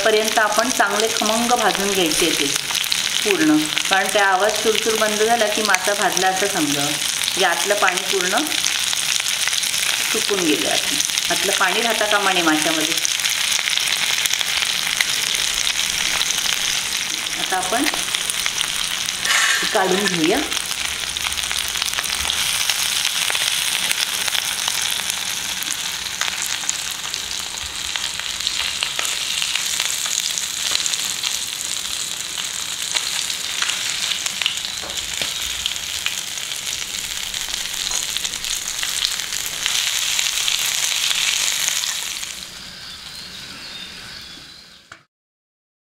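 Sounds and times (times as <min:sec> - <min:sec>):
fish sizzling in oil: 0:00.0 - 0:44.8.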